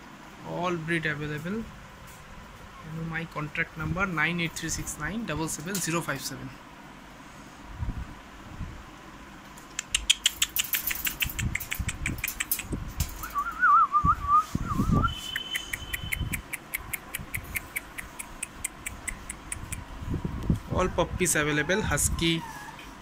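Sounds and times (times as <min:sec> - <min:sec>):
puppies rattling wire cage floor: 0:10.2 - 0:13.4
puppy high-pitched call: 0:21.6 - 0:23.0.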